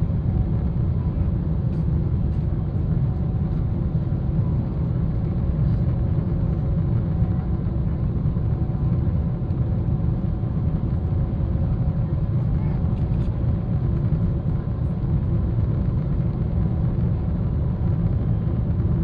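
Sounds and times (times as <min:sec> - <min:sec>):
airplane cabin rumble: 0:00.0 - 0:19.0.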